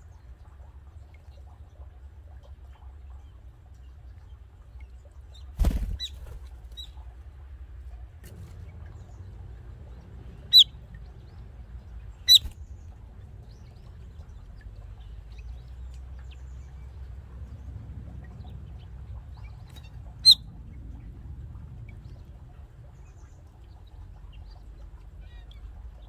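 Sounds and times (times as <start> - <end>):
small bird high calls: 5.4 - 7.0, 10.4 - 10.8, 12.1 - 13.0, 19.4 - 20.5.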